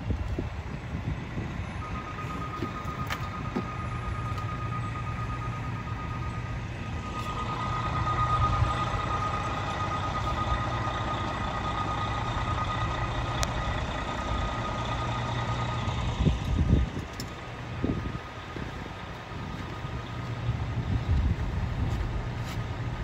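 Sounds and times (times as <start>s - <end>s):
diesel engine rumbling: 0.0s - 23.0s
high-pitched whine: 1.4s - 18.8s.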